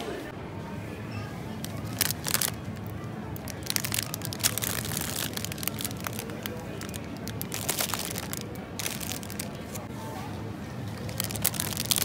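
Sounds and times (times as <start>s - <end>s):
plastic wrappers crackling: 1.6s - 9.9s, 11.0s - 12.0s.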